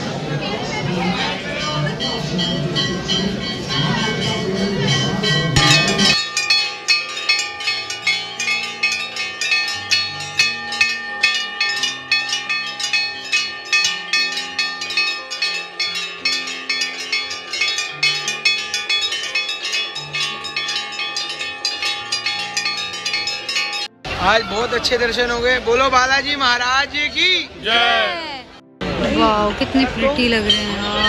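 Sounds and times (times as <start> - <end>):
brass bells clanging: 1.6 - 24.4
low held notes: 1.8 - 24.2.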